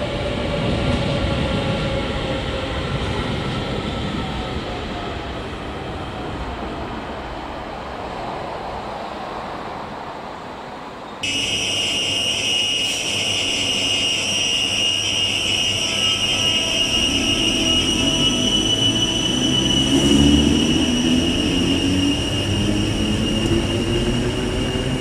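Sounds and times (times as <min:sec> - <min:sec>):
electric train rumbling: 0:00.0 - 0:25.0
high-pitched train whine: 0:11.2 - 0:25.0.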